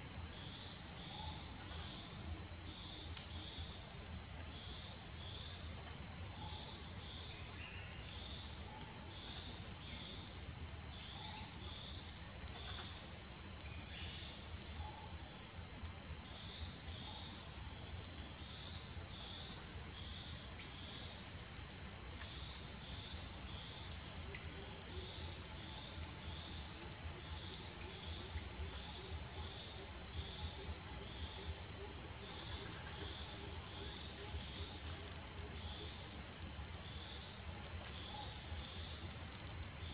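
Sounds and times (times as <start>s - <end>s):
high-pitched insect drone: 12.5s - 15.4s.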